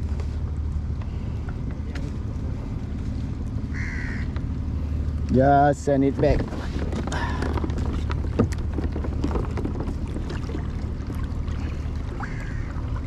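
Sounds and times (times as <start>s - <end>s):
water against kayak hull: 6.0s - 13.0s.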